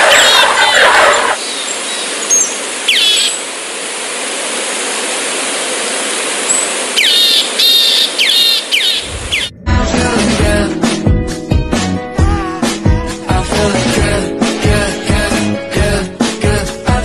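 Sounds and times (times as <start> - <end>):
cheetahs chirping: 0.0 - 3.4, 7.0 - 9.6.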